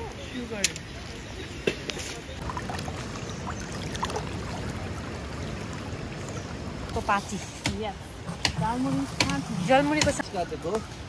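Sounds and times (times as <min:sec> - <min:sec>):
stream flowing over stones: 0:00.5 - 0:07.6.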